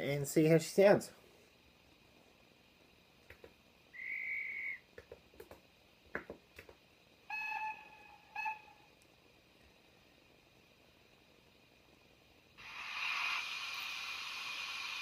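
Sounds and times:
low chord-like whistle: 4.0s - 4.8s
short high whistle: 4.0s - 4.8s.

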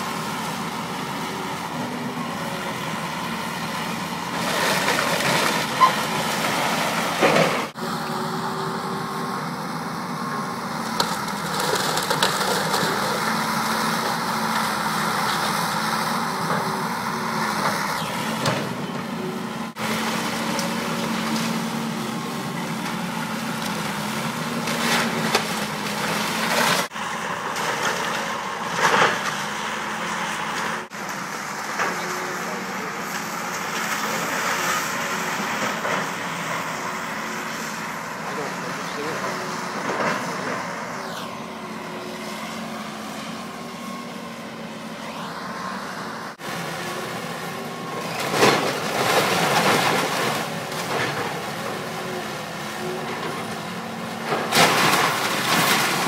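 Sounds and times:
excavator diesel engine: 0.0s - 56.0s
timber cracking and crashing: 48.2s - 51.5s, 54.3s - 56.0s.

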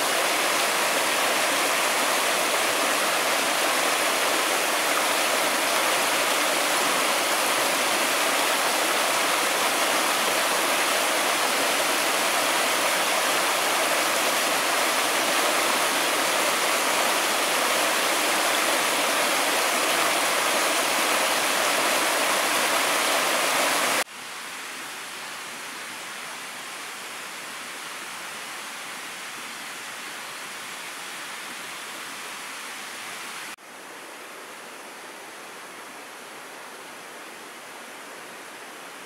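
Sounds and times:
stream splashing over stones: 0.0s - 24.1s.

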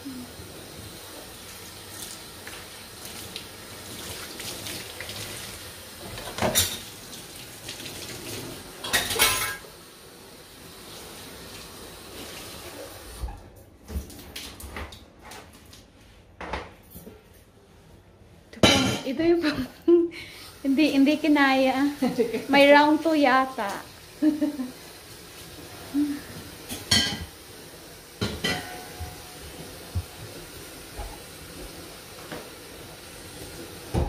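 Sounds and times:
tap water running into sink: 0.6s - 9.8s, 23.5s - 34.0s
dishes and cutlery clattering: 6.1s - 6.9s, 8.8s - 9.7s, 26.7s - 27.3s, 28.2s - 29.3s
dishes knocking: 28.2s - 29.2s.

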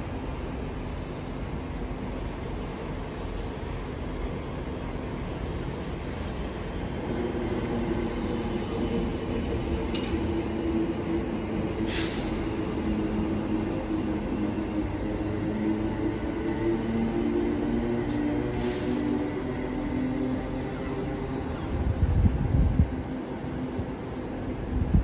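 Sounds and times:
train humming: 0.0s - 25.0s
sharp hiss of air: 11.7s - 12.7s, 18.5s - 19.1s.

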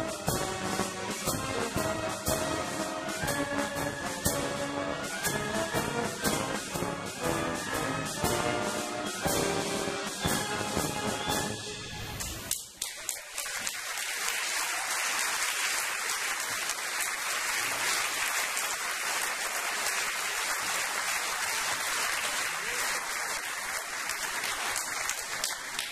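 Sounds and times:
audience applauding: 12.2s - 25.9s.

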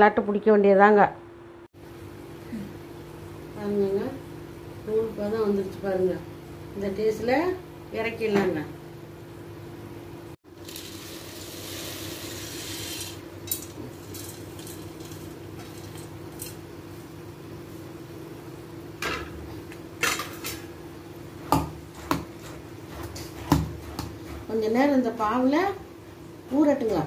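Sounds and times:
fried snack poured rattling hiss: 10.6s - 13.2s
steady low hum: 13.2s - 27.0s.

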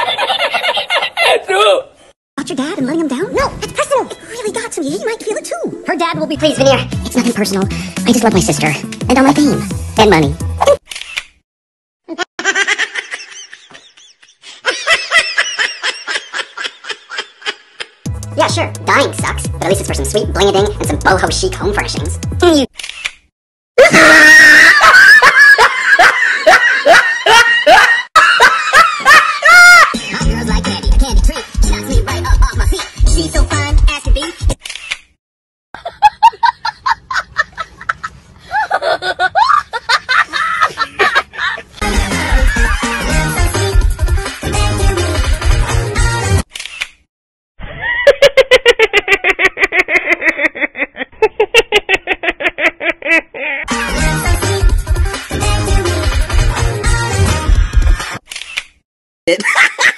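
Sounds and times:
cartoon character laughing: 12.1s - 14.0s, 23.8s - 30.6s, 35.8s - 43.2s, 47.6s - 54.0s, 59.3s - 59.9s
cartoon voice laughing: 29.4s - 30.7s, 47.6s - 54.0s.

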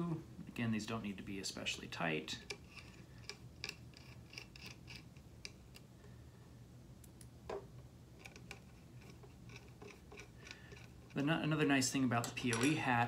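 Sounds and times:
small screws clicking: 2.5s - 5.9s, 8.2s - 11.2s.

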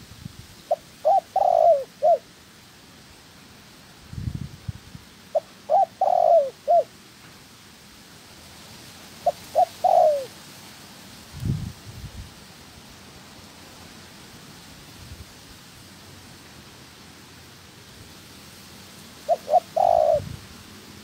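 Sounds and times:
dove cooing: 0.7s - 2.3s, 5.3s - 6.9s, 9.2s - 10.4s, 19.2s - 20.5s.

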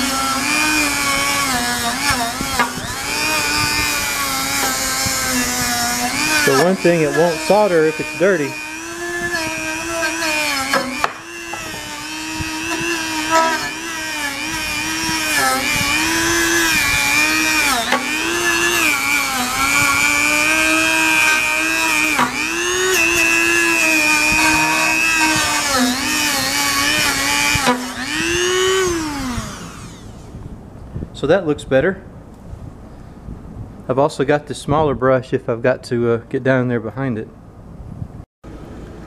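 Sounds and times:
rotary tool wire brush whining: 0.0s - 30.4s.

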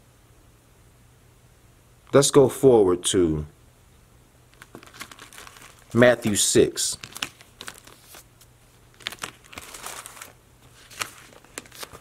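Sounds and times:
pages rustling and crinkling: 4.5s - 12.0s.

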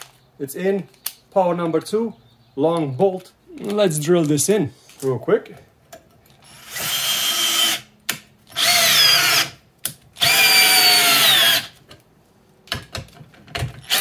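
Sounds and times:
cordless drill driving bolt into wood: 6.5s - 11.7s, 13.6s - 14.0s.

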